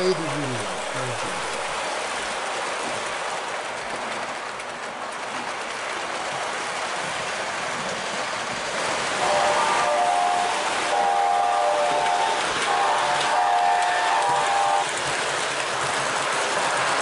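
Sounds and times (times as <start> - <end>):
model train cars clattering: 0.0 - 17.0
electronic diesel horn: 9.2 - 14.8.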